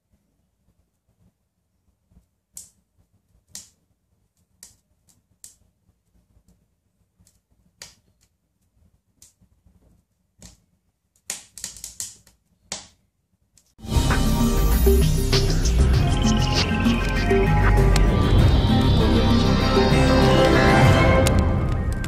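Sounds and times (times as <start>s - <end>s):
logs crackling and popping: 20.0s - 22.0s.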